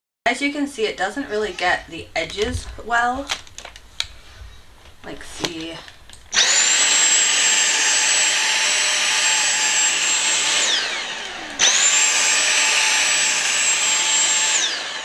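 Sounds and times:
vacuum motor whine: 0:06.3 - 0:15.0.

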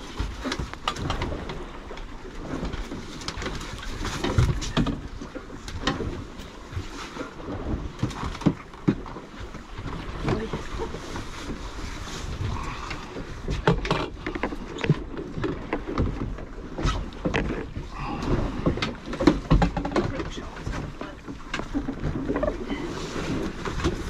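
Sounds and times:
water slapping against boat hull: 0:00.0 - 0:24.0
wind on microphone: 0:09.9 - 0:15.2, 0:16.0 - 0:19.8.

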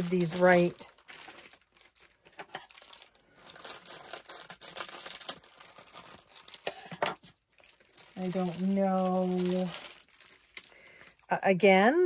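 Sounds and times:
plastic pouches and paper crinkling: 0:00.0 - 0:11.4.

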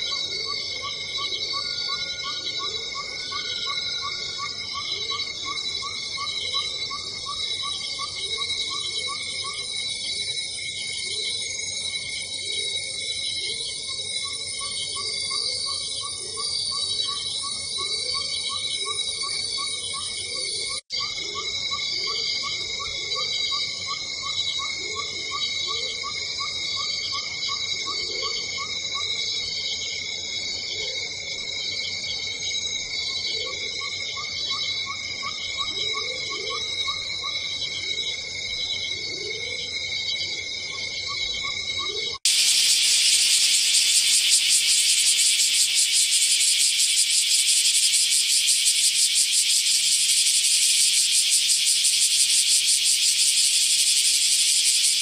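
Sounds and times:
cicadas singing: 0:00.0 - 0:55.0
cicada buzzing: 0:42.2 - 0:55.0.

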